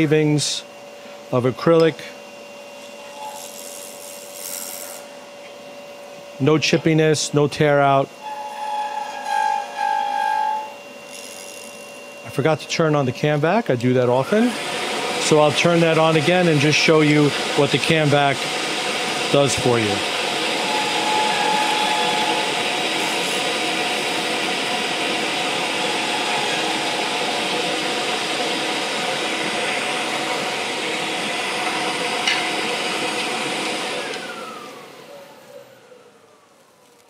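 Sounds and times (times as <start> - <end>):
dust extractor running: 0.0 - 37.0
gouge skimming spinning lathe work: 2.9 - 5.1, 8.2 - 13.4, 14.0 - 36.4
machines winding down whine: 7.7 - 37.0.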